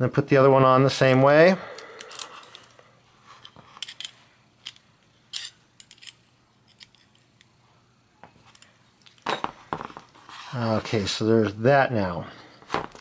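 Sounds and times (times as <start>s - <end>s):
metallic clicks and scrapes: 1.8s - 7.5s.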